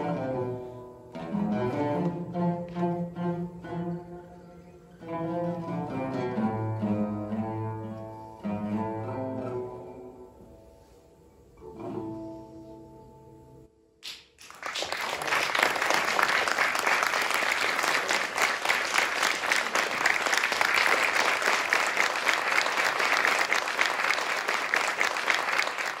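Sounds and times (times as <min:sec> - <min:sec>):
audience applauding: 0:14.0 - 0:26.0.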